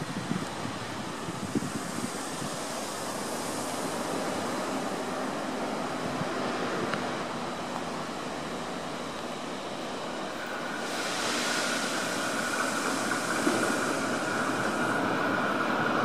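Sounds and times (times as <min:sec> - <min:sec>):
wind on microphone: 0:00.0 - 0:02.9
train rumbling: 0:00.0 - 0:16.0.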